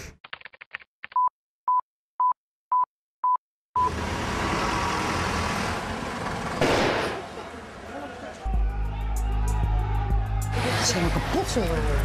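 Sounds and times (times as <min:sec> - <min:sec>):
outdoor street noise: 0:03.8 - 0:12.0.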